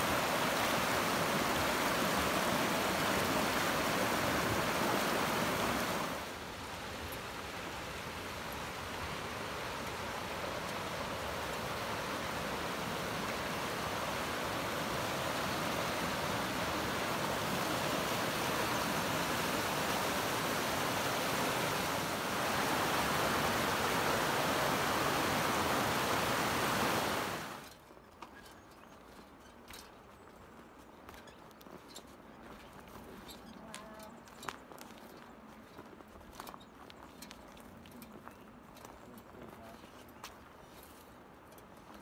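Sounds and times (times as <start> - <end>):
water rushing: 0.0 - 27.6.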